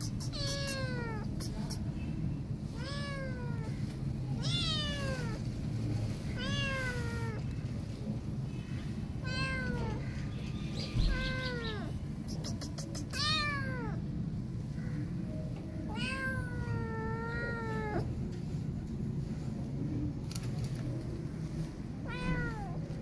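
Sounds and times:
cat meowing: 0.0 - 1.8, 2.7 - 3.7, 4.4 - 5.4, 6.3 - 7.4, 9.2 - 10.0, 11.0 - 12.0, 12.8 - 14.0, 15.9 - 18.1, 22.0 - 22.8.

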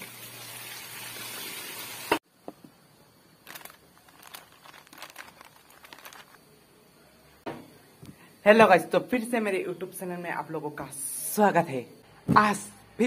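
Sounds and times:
plastic snack packet crinkling: 3.4 - 6.5.

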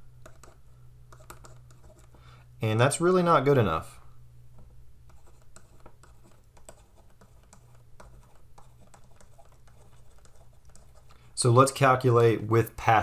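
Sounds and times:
stylus tapping and scratching on tablet: 0.0 - 2.3, 4.5 - 11.4
faint low hum: 0.0 - 13.0.

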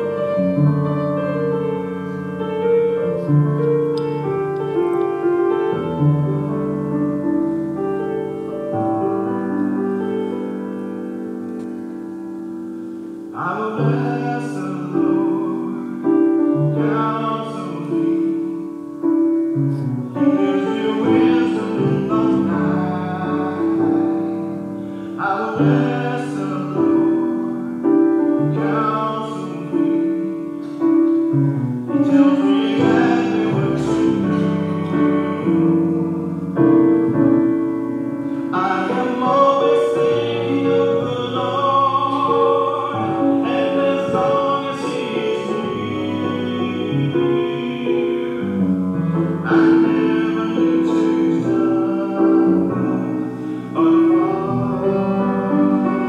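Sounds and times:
piano playing slow chords: 0.0 - 56.0
person singing: 12.7 - 56.0.

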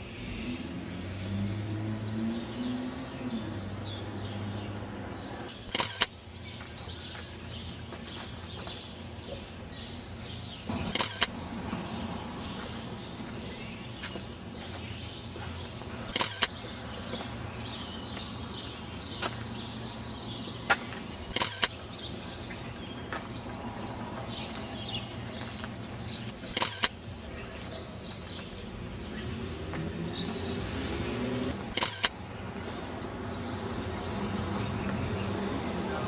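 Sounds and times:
birds chirping: 0.0 - 36.0
city traffic: 0.0 - 36.0
vehicle engine: 0.0 - 36.0
sharp clicks: 5.7 - 6.2, 10.8 - 11.4, 16.1 - 16.6, 21.3 - 21.8, 26.4 - 27.0, 31.7 - 32.2.

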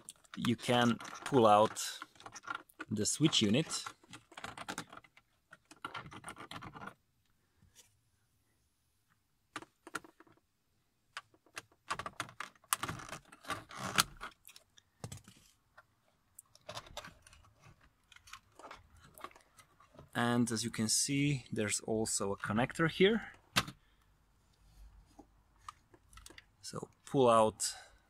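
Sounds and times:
hard plastic clicking and scraping: 0.0 - 7.0, 11.1 - 20.2, 25.1 - 26.6.

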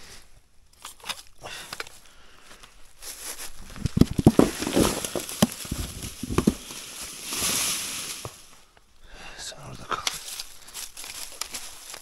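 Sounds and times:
irregular crunching and knocking: 2.6 - 8.7, 9.9 - 12.0.

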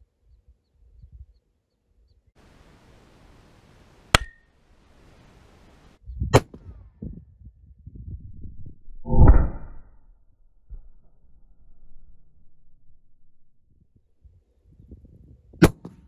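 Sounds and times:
faint hiss: 2.4 - 6.0
low rumble: 6.0 - 15.2.

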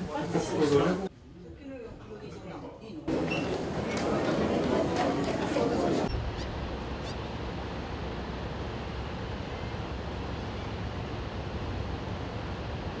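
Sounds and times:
low harbour rumble: 3.1 - 13.0.

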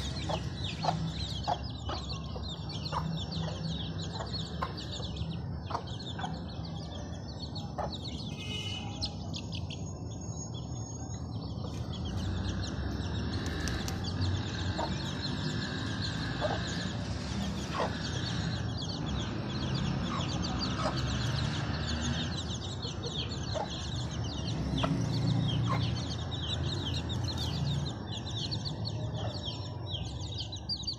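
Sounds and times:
chickens clucking: 0.0 - 6.8, 13.0 - 27.7
small birds chirping: 0.0 - 30.9.

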